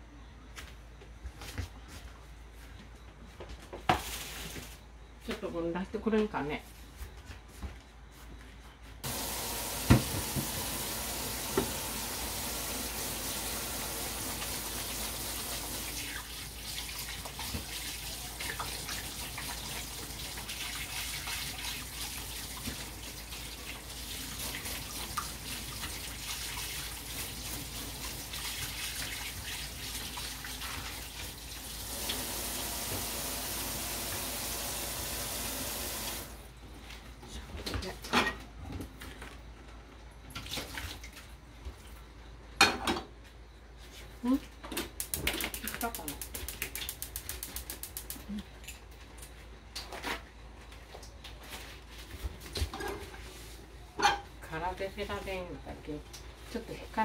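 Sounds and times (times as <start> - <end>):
tap water running into a sink: 9.0 - 36.4.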